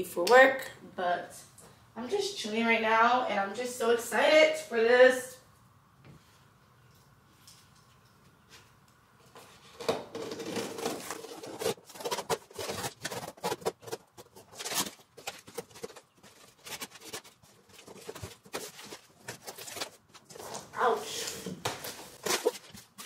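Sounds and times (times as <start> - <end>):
cardboard rustling and scraping: 9.3 - 23.0.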